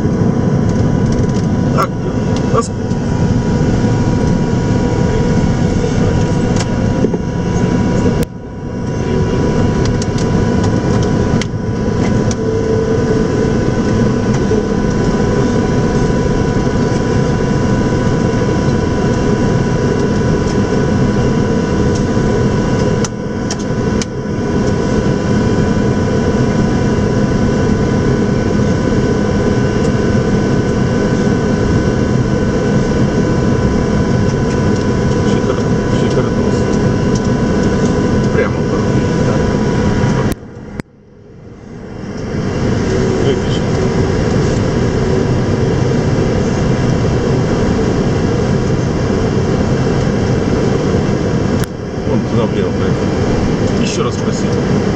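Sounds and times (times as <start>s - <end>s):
cockpit rumble: 0.0s - 54.9s
thin steady whine: 0.0s - 54.9s.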